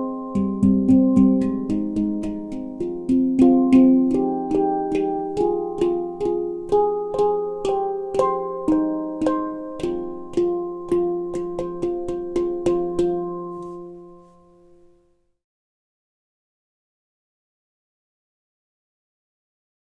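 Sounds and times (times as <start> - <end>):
handpan notes ringing: 0.0 - 15.0.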